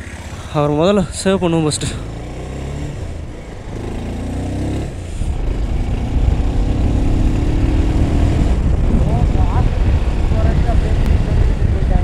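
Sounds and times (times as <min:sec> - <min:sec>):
motorcycle engine revving: 0:00.0 - 0:12.0
heavy low rumble: 0:04.8 - 0:12.0.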